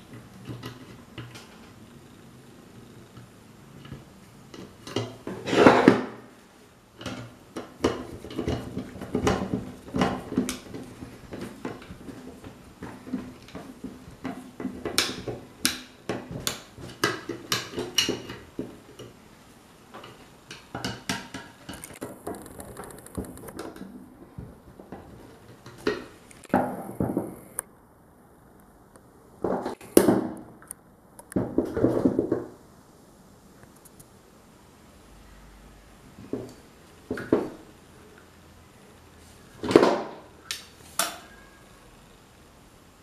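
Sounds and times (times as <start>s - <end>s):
scraping handling noises: 3.2s - 6.2s.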